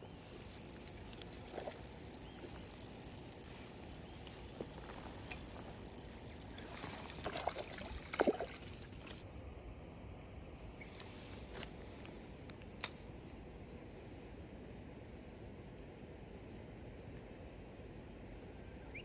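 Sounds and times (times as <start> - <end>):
outdoor background noise: 0.0 - 19.0
spinning reel being cranked: 0.2 - 0.9, 1.5 - 6.6
short water splashes: 6.5 - 9.2.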